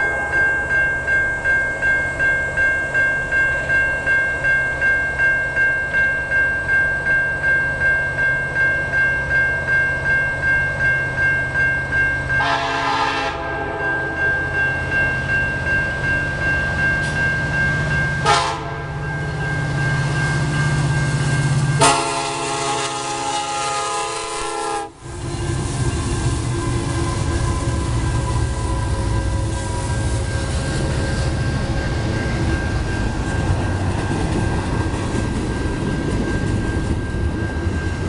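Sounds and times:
low rumble of locomotive: 0.0s - 38.0s
railroad crossing bell ringing: 0.0s - 38.0s
locomotive air horn blasts: 12.4s - 13.8s, 18.2s - 18.9s, 21.8s - 25.0s.

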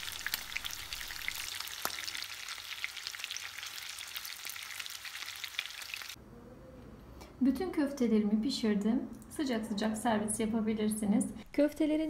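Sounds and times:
meat sizzling in frying pan: 0.0s - 6.2s.

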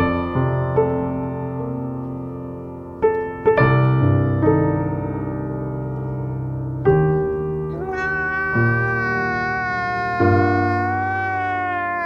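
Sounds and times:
slow solo piano music: 0.0s - 9.4s.

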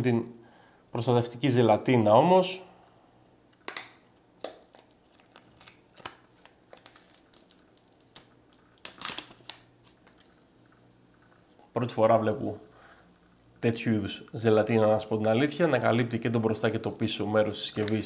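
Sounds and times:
plastic film crackling and crinkling: 3.5s - 18.0s.

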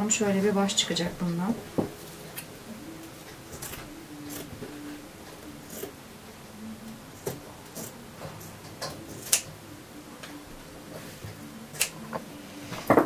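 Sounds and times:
scissors snipping fabric: 5.6s - 6.0s, 9.1s - 9.5s, 11.8s - 12.0s.

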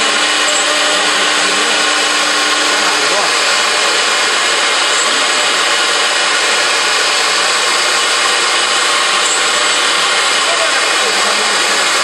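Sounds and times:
router spindle cutting wood: 0.0s - 12.0s.

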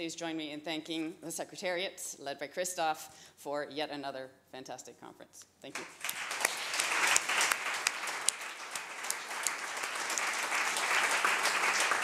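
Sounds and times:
crowd applauding: 5.8s - 12.0s.

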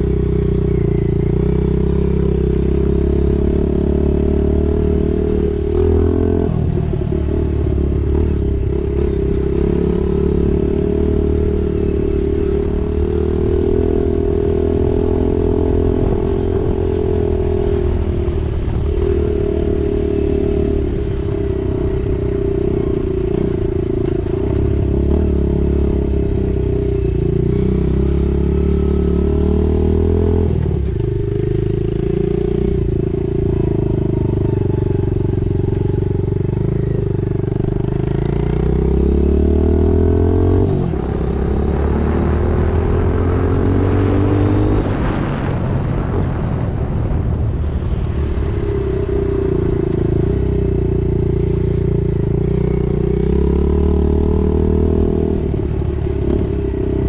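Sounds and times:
rushing noise: 44.8s - 51.5s.

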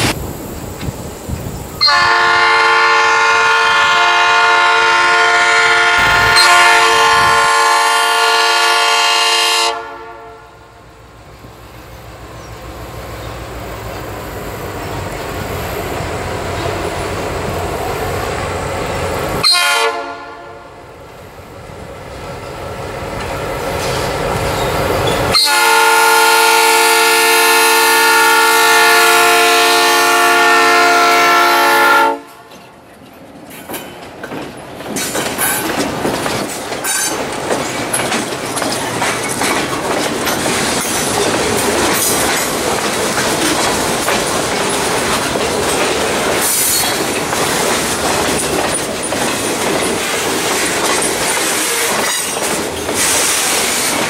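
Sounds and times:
diesel locomotive rumble: 0.0s - 54.0s
locomotive air horn blast: 1.8s - 10.6s, 19.4s - 20.8s, 25.3s - 32.5s
freight car wheels clattering on rails: 33.6s - 54.0s.

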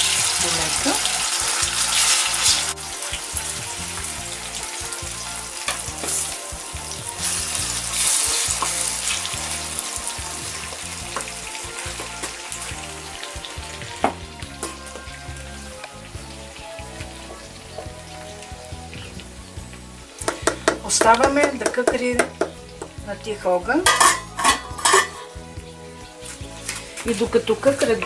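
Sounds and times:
wooden spoon stirring in pan: 0.0s - 15.9s, 20.2s - 23.0s
peppers sizzling in oil: 0.0s - 28.0s.

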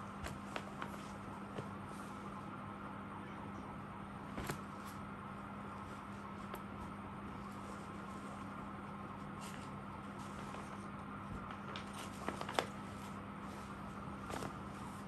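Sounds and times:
steady low hum: 0.0s - 15.0s
cloth and wrapping being handled: 9.4s - 15.0s.

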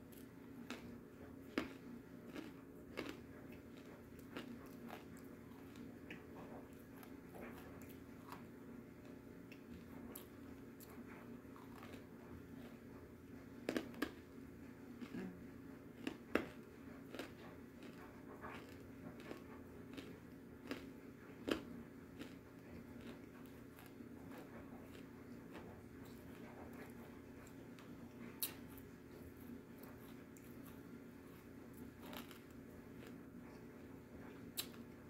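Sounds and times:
clay being chewed crunching: 0.0s - 35.0s
faint steady hum: 0.0s - 35.0s.

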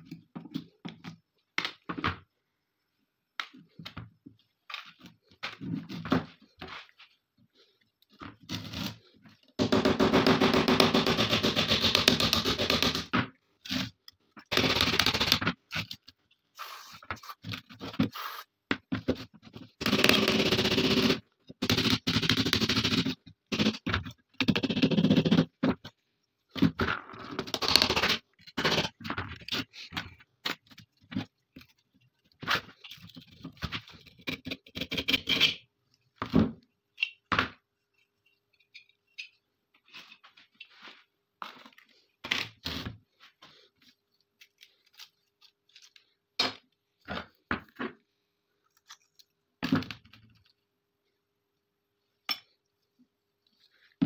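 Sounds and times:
metal gun parts scraping and clinking: 37.9s - 40.2s.

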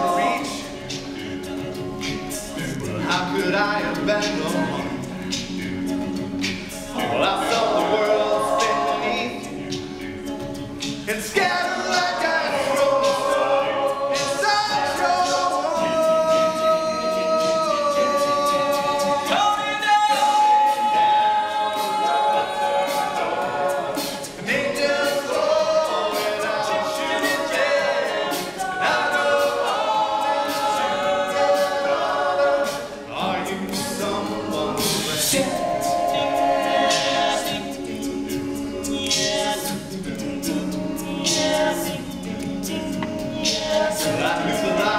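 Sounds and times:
male a cappella group singing: 0.0s - 44.9s.

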